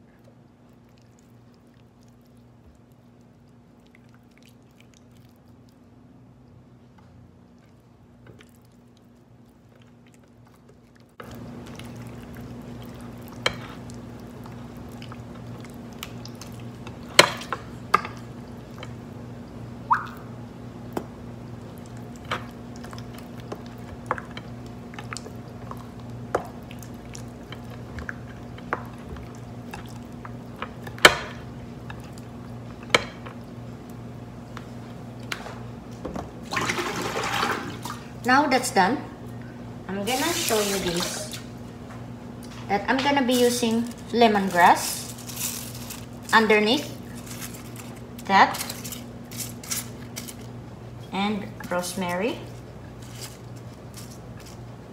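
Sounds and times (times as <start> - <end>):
wet squishing of hands on meat: 0.1 - 6.0.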